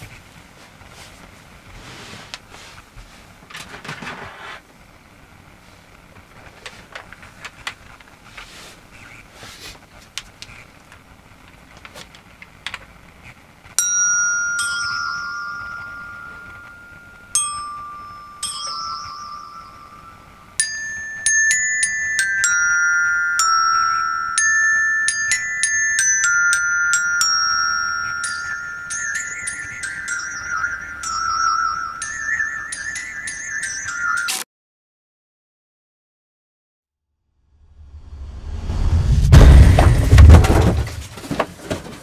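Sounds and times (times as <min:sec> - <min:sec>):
glockenspiel-like metal notes: 0:13.8 - 0:34.4.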